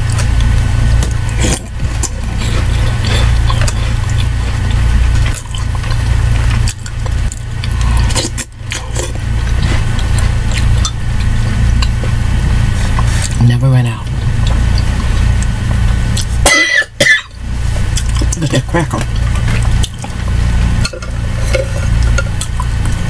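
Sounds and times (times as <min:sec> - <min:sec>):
mouth chewing sounds: 0:00.0 - 0:23.0
steady low hum: 0:00.0 - 0:23.0.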